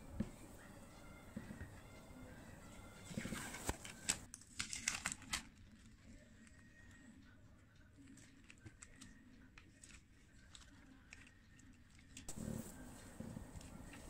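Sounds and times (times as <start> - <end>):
tape and paper crinkling: 3.0 - 6.6, 8.0 - 14.0.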